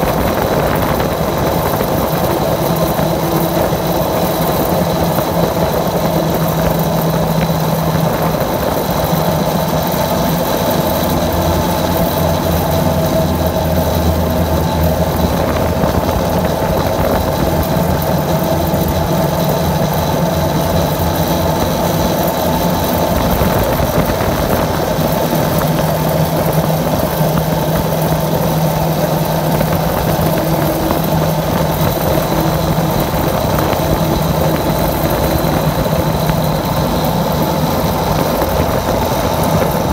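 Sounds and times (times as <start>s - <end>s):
high steady whine: 0.0s - 39.9s.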